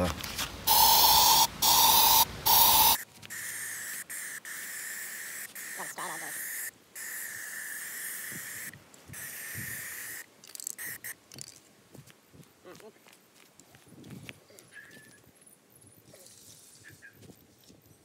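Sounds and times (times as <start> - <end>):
aerosol paint spraying: 0.4 - 11.5.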